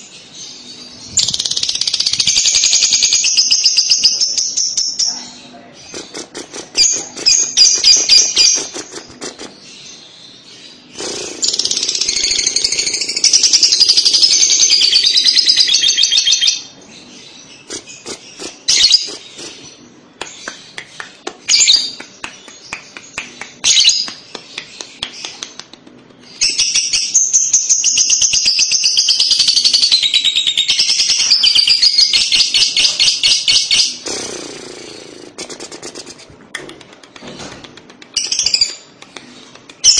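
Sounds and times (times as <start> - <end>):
bird chattering trill: 1.1 - 9.5.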